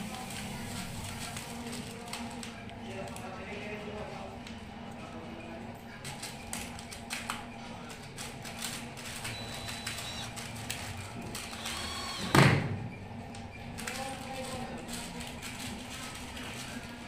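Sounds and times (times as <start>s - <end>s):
drill whine: 9.3s - 10.3s, 11.4s - 12.4s.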